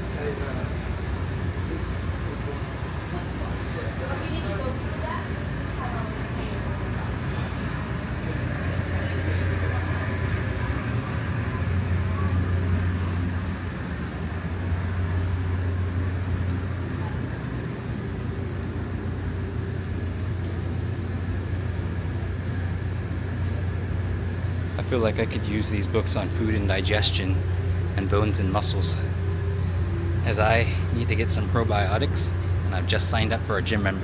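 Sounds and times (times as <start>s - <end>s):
faint voices murmuring: 0.0s - 34.0s
low mechanical hum: 0.0s - 34.0s.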